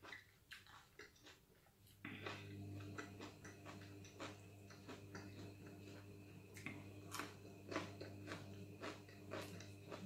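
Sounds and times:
chewing clicks: 0:00.0 - 0:01.5
steady low hum: 0:01.9 - 0:10.0
fingers working rice on a plate: 0:07.1 - 0:10.0.

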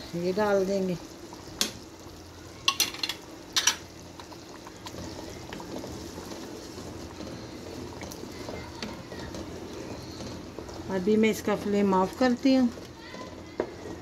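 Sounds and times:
wooden spoon stirring pot: 0:00.0 - 0:14.0
gravy sloshing: 0:03.2 - 0:14.0.

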